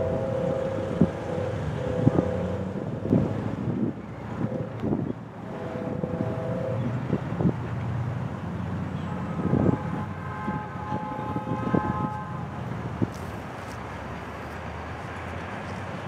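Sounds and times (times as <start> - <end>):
distant train horn: 0.0 - 7.9, 8.7 - 13.2
truck engine rumbling: 0.0 - 16.0.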